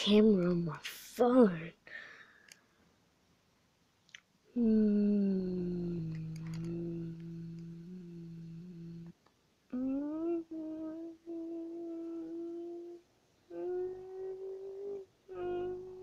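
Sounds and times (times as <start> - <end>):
person humming: 4.5 - 16.0.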